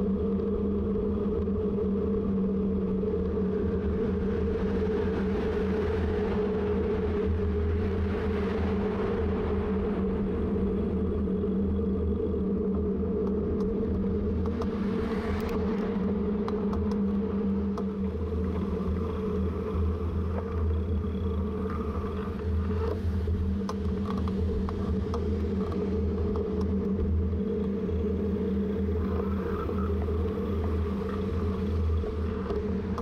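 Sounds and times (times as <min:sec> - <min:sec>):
bicycle tyre and wind rumble: 0:00.0 - 0:33.0
faint ticks: 0:13.2 - 0:14.8, 0:15.4 - 0:27.8.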